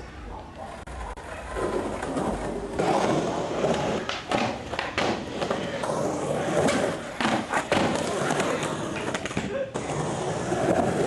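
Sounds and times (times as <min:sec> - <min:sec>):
skateboard wheels rolling on concrete: 0:00.0 - 0:11.0
skateboard knocking on ground: 0:03.7 - 0:05.6, 0:06.6 - 0:09.5.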